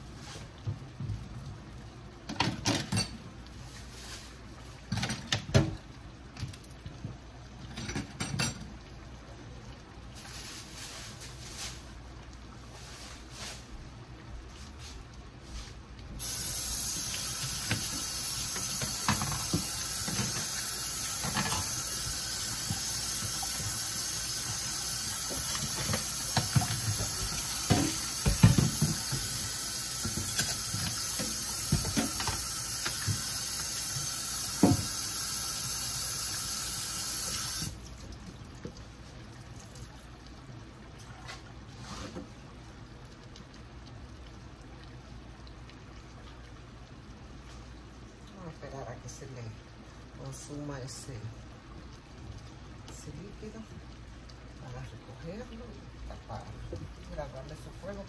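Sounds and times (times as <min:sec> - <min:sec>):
kitchen tap running: 0:16.2 - 0:42.3.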